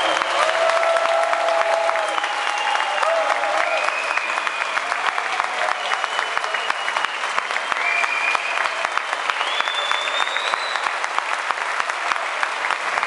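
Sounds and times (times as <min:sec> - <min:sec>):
audience applauding: 0:00.0 - 0:13.0
high drawn-out whistles: 0:03.7 - 0:04.8, 0:05.8 - 0:10.9.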